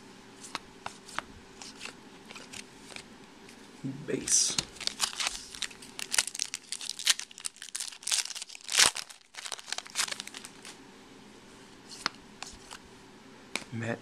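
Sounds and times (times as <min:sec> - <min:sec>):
foil wrapper crinkling: 0:04.5 - 0:10.8.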